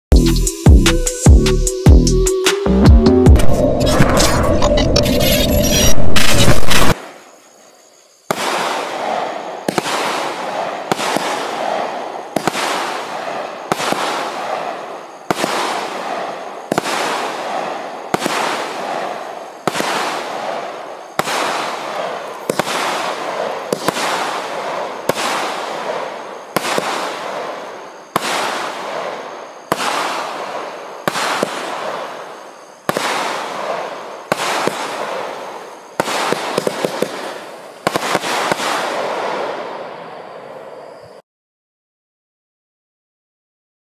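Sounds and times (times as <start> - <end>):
fireworks banging and crackling: 5.0 - 7.3, 8.2 - 40.1.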